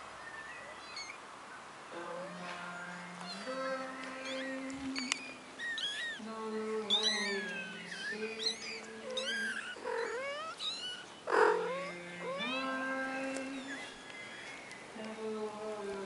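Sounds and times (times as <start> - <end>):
kittens mewing: 2.2 - 14.7.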